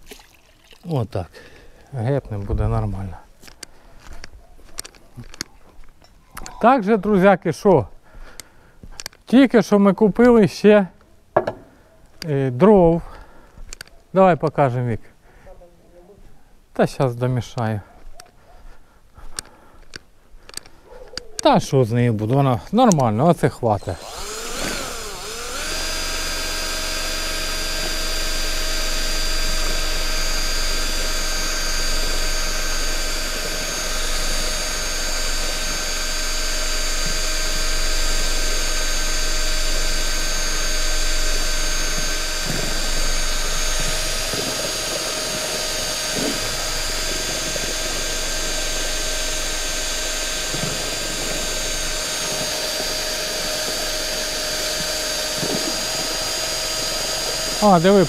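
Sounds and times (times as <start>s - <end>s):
drill mixer whining: 23.6s - 58.0s.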